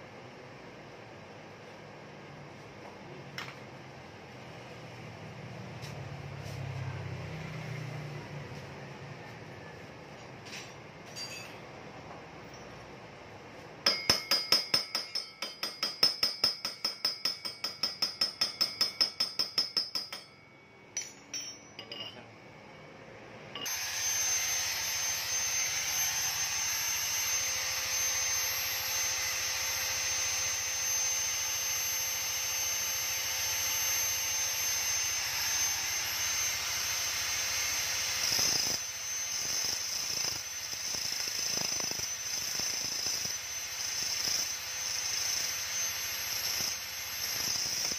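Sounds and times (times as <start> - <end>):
electric grinder grinding metal: 23.7 - 47.9.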